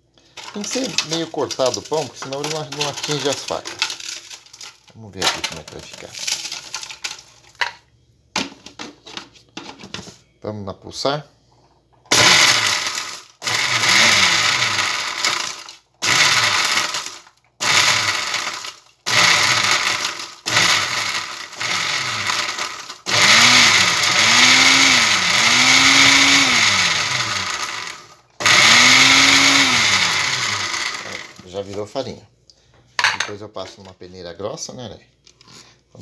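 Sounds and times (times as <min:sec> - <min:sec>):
blender grinding bread: 0:00.4 - 0:04.7, 0:12.1 - 0:31.8.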